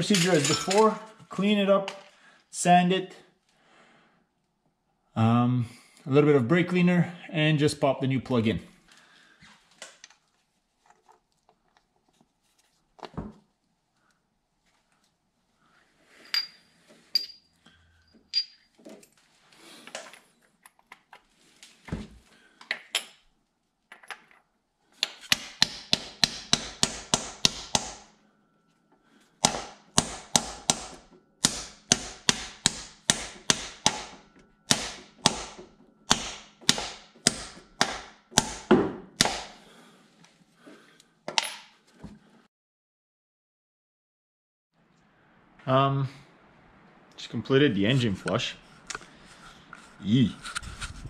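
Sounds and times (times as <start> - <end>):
hammer striking metal: 25.3 - 28.1, 29.4 - 39.6.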